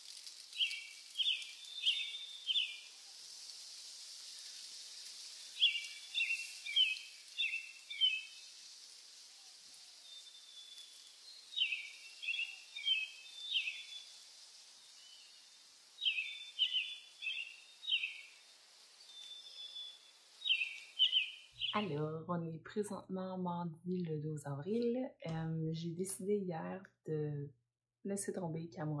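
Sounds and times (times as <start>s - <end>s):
steady outdoor hiss: 0.0s - 22.2s
songbird singing: 0.5s - 3.0s, 4.4s - 22.6s.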